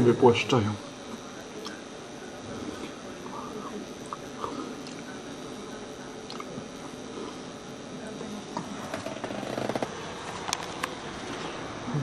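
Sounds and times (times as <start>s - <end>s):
faint background speech: 0.9s - 9.7s.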